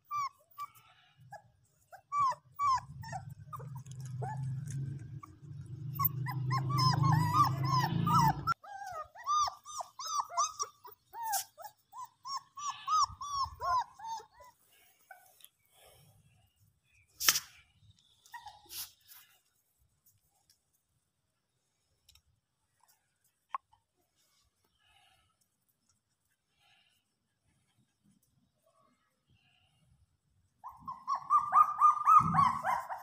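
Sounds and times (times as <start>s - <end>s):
puppies whimpering and yelping: 0.0s - 16.0s, 18.2s - 19.0s, 30.6s - 33.0s.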